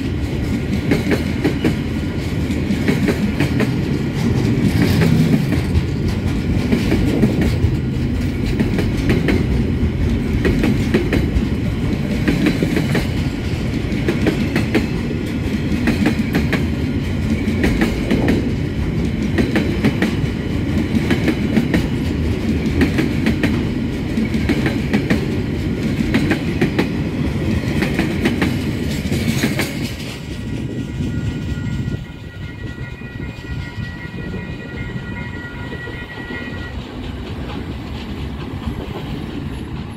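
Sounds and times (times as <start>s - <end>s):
freight train rolling past: 0.0s - 39.9s
wheels clicking over rail joints: 36.8s - 39.9s.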